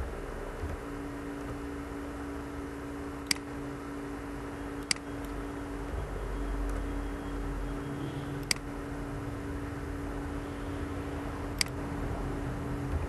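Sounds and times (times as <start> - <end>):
low hum and hiss: 0.0 - 13.0
computer clicks: 3.2 - 3.5, 4.8 - 5.4, 8.4 - 8.7, 11.5 - 11.8.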